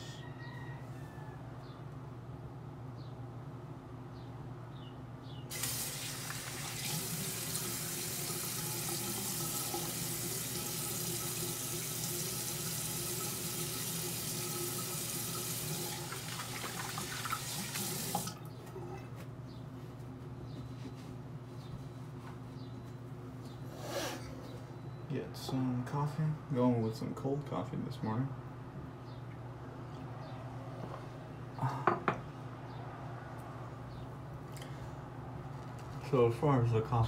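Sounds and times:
tap water running: 0:05.5 - 0:18.5.

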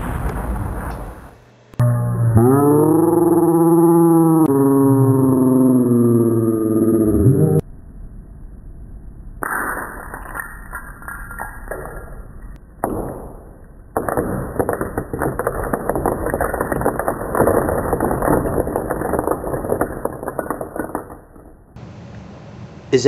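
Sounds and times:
crackling rumbling explosion blast: 0:00.0 - 0:01.4, 0:12.9 - 0:21.8.

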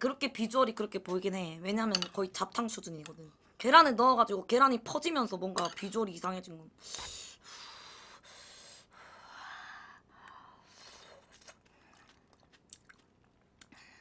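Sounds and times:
faint chewing: 0:10.8 - 0:13.8.

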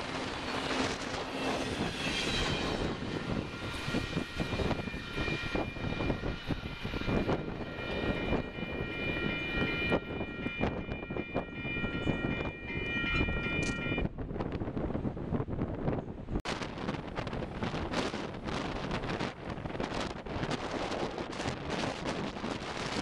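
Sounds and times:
steady high ringing tone: 0:00.0 - 0:14.1
train rolling past: 0:00.0 - 0:15.1
wind buffeting microphone: 0:00.0 - 0:23.0.

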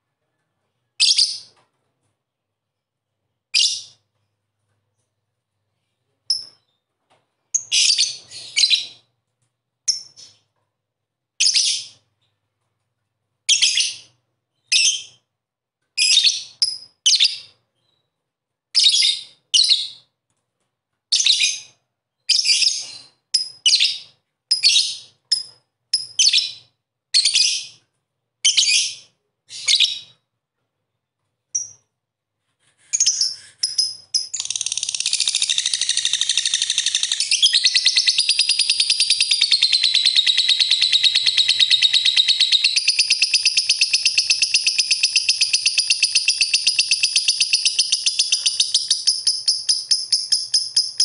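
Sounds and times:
lovebird shrill chirping: 0:33.0 - 0:51.0.

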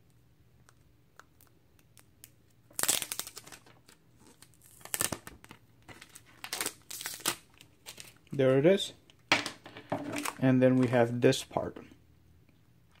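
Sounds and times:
packaging crinkling: 0:02.7 - 0:08.3, 0:10.1 - 0:10.4.

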